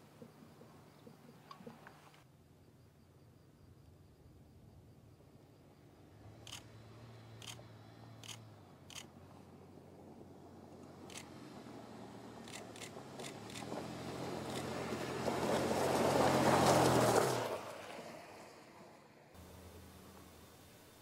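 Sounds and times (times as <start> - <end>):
vehicle driving on gravel: 6.2 - 21.0
sharp clicks: 7.4 - 7.6, 8.2 - 9.1, 11.1 - 11.3.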